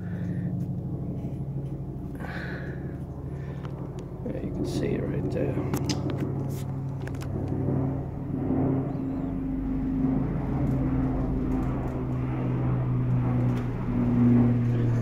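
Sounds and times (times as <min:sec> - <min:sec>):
machine humming: 0:06.8 - 0:15.0.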